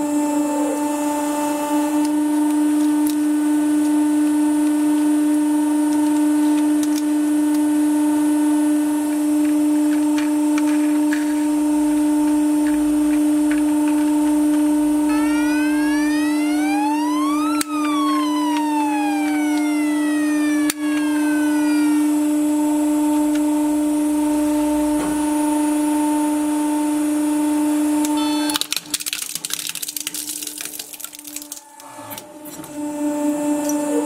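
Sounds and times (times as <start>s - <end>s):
steady electric hum: 0.0s - 34.0s
siren-like electronic sweep: 15.1s - 25.0s.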